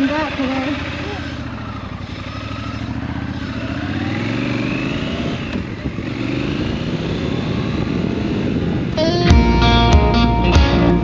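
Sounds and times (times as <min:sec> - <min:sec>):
motorcycle engine running: 0:00.0 - 0:11.0
electric guitar music: 0:09.0 - 0:11.0.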